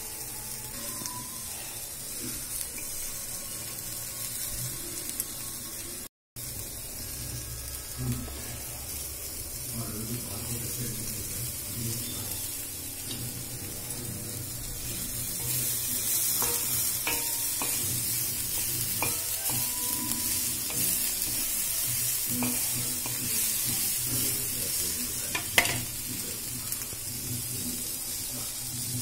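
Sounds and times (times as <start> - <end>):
steady hiss: 6.4 - 29.0
spatula scraping iron pan: 14.8 - 24.2.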